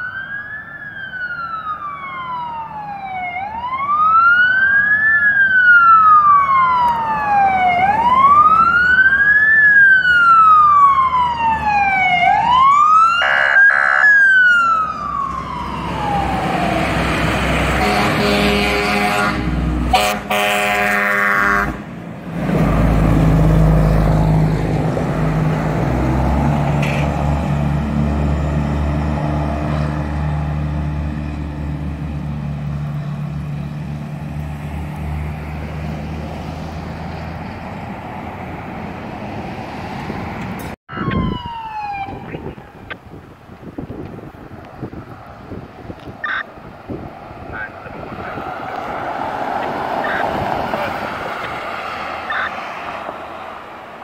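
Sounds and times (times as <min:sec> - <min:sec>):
electronic wail siren: 0:00.0 - 0:17.0, 0:40.9 - 0:43.0, 0:46.2 - 0:46.5, 0:50.0 - 0:50.4, 0:52.2 - 0:52.7
fire truck engine rumble: 0:00.0 - 0:54.0
long horn blasts: 0:17.7 - 0:21.9.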